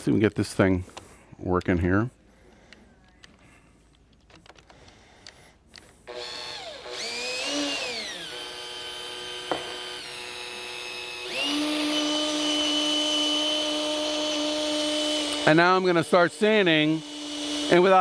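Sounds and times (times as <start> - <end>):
cordless drill motor whine: 4.5 - 18.0.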